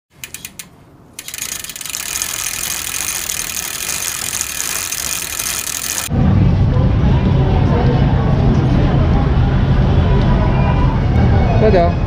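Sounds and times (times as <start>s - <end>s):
fast ratcheting buzz: 0.2s - 6.1s
sharp clicks: 0.2s - 6.1s.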